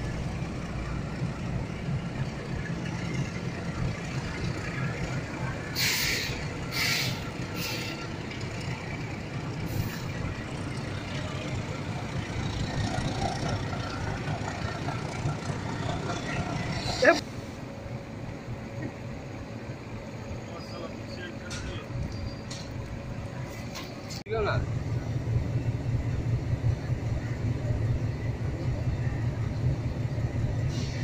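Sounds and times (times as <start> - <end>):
diesel locomotive engine rumbling: 0.0 - 31.0
sharp hisses of air: 5.8 - 8.0, 30.7 - 31.0.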